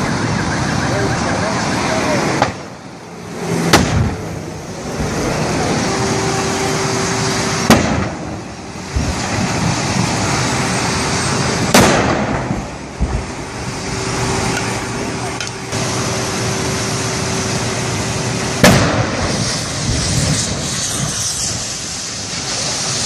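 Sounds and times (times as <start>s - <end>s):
loud background noise: 0.0s - 23.0s
gas cylinders exploding: 7.3s - 14.8s, 17.4s - 23.0s.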